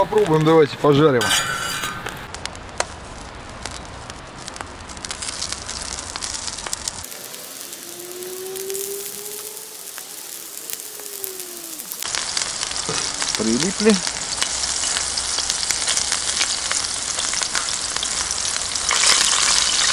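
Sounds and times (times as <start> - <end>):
hot oil sizzling on a griddle: 1.3 - 19.9
faint whining tone: 7.1 - 12.0.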